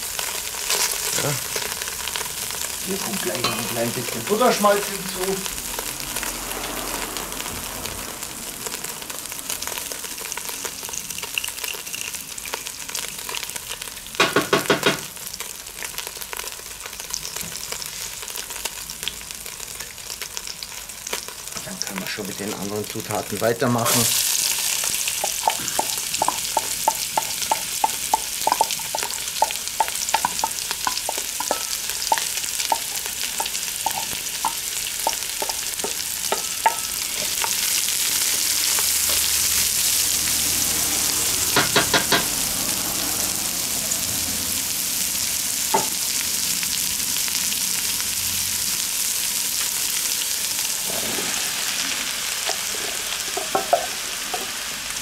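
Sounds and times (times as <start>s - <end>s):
onions sizzling in butter: 0.0s - 55.0s
wooden spatula knocking pot: 25.2s - 37.6s.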